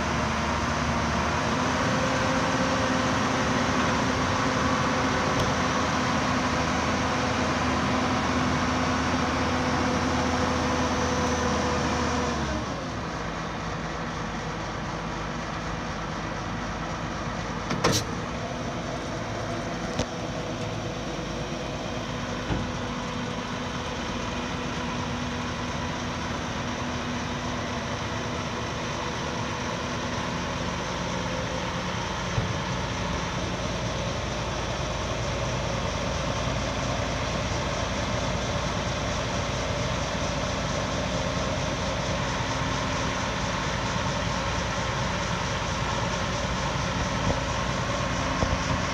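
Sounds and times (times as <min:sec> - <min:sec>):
diesel truck engine running: 0:00.0 - 0:48.9
hydraulic hoist lowering dump bed: 0:17.6 - 0:18.4.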